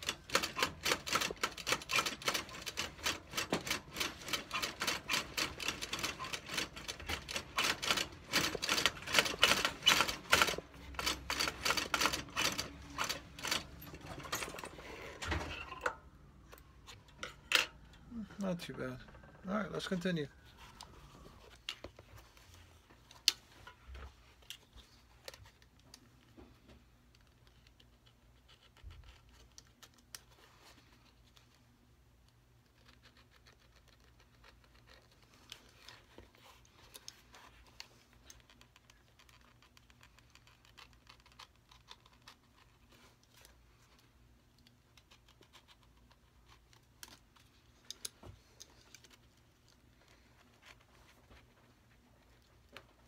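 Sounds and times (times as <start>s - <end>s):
small clicks and scratches on leather: 24.4s - 53.0s.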